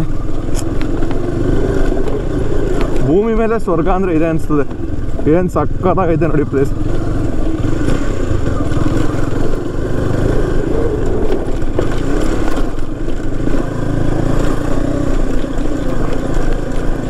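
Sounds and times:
motorcycle engine running: 0:00.0 - 0:17.0.

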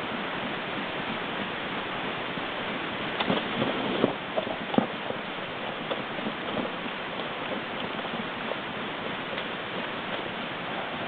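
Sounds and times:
knocks and crackles on tarp: 0:03.2 - 0:05.2.

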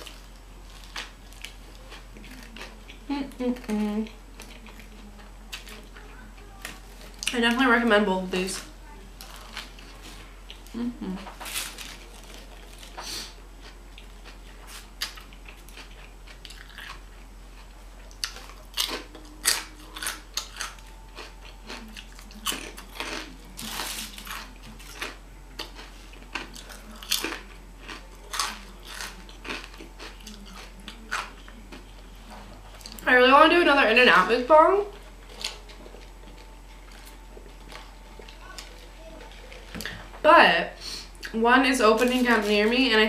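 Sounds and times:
chewing crunchy chips: 0:00.0 - 0:07.4, 0:09.2 - 0:33.0, 0:35.2 - 0:40.0.

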